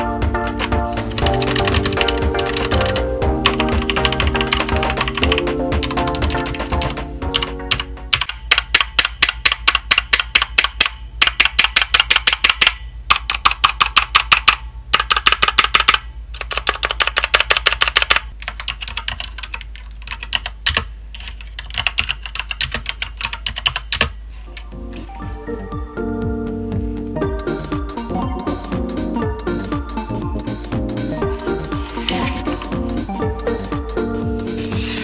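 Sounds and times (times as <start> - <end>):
mechanical keyboard typing: 0.6 - 24.2.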